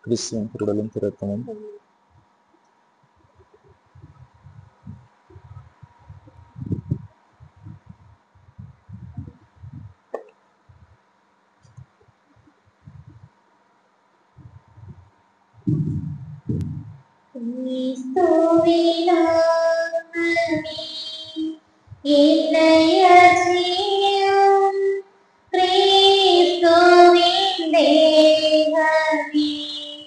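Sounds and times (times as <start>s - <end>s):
faint steady hum: 0.0s - 30.0s
high voice singing hymn: 15.7s - 25.0s, 25.6s - 30.0s.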